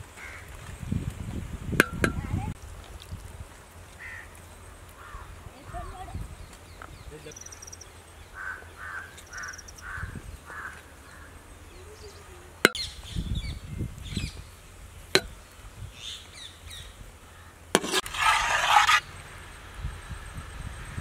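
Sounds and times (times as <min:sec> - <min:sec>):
crow cawing: 0:00.2 - 0:00.5, 0:04.0 - 0:04.3, 0:05.0 - 0:05.3, 0:08.4 - 0:11.4
small birds chirping: 0:03.9 - 0:17.6
loud scraping: 0:17.8 - 0:19.1.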